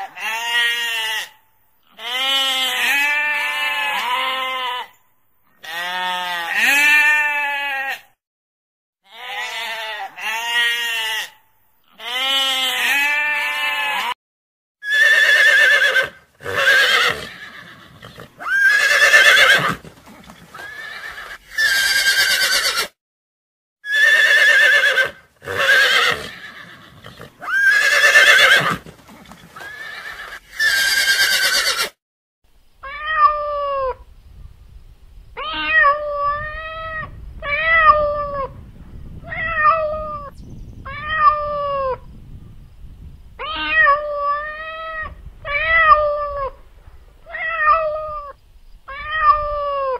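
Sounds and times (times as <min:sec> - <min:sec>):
goat bleating: 0:00.0 - 0:04.9, 0:05.6 - 0:08.1, 0:09.1 - 0:14.2
horses whinnying: 0:14.8 - 0:22.9, 0:23.9 - 0:32.0
cat meowing: 0:32.8 - 0:34.0, 0:35.4 - 0:38.5, 0:39.3 - 0:40.3, 0:40.9 - 0:42.0, 0:43.4 - 0:46.6, 0:47.3 - 0:49.9.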